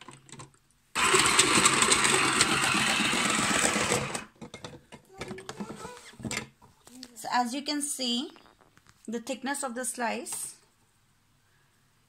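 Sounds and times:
mandoline slicer motor running: 1.0s - 4.3s.

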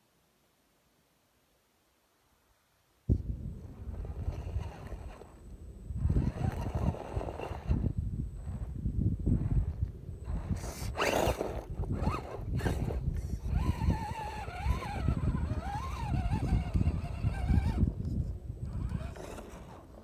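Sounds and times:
steady low rumble: 3.1s - 10.9s
electric motor whining: 3.7s - 20.0s.

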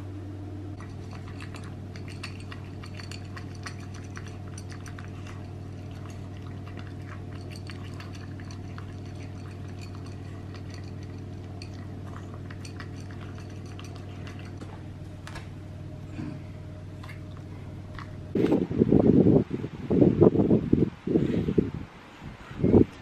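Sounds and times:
steady low hum: 0.0s - 23.0s
kibble clinking in bowl: 0.8s - 14.6s.

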